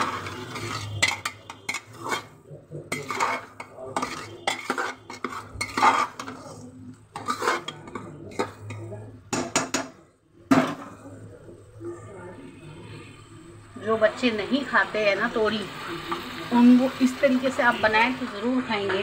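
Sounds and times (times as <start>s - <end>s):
metal ladle scraping a pot: 0.0s - 9.6s.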